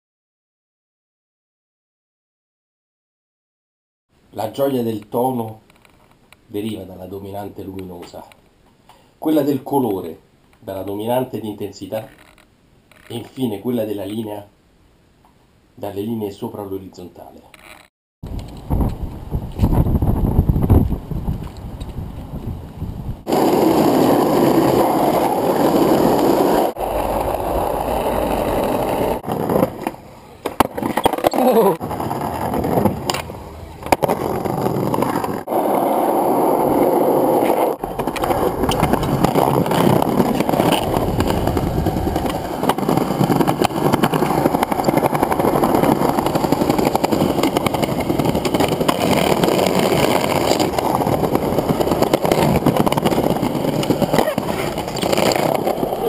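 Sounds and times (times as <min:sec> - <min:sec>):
skateboard wheels rolling: 0:17.6 - 0:56.0.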